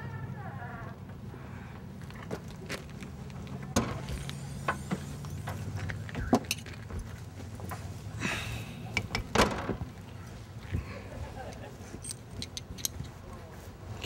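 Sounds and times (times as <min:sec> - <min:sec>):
steady low hum: 0:00.0 - 0:14.0
clicks clinks and rattles: 0:05.8 - 0:06.9, 0:11.5 - 0:13.2
keys jangling: 0:12.0 - 0:13.2.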